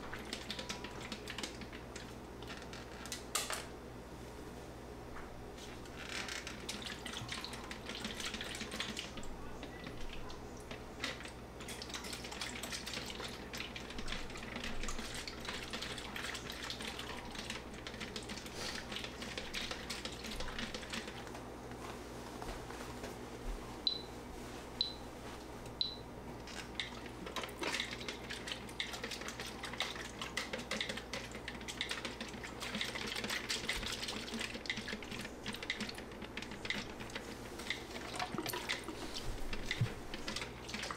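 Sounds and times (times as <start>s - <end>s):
liquid sloshing in plastic tank: 5.6s - 21.3s, 26.4s - 40.9s.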